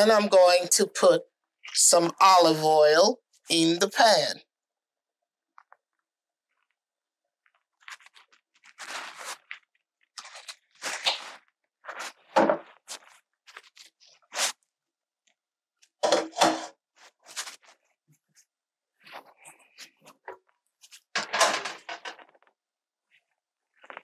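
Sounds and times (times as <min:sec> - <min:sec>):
utensils and dishes clattering: 0:16.0 - 0:16.7.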